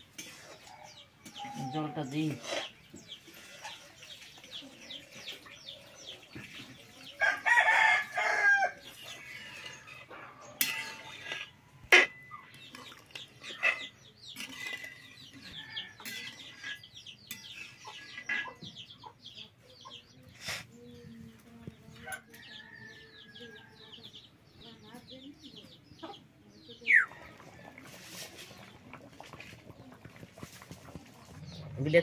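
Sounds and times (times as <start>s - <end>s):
rooster crowing: 7.2s - 8.8s
chickens: 26.8s - 32.0s.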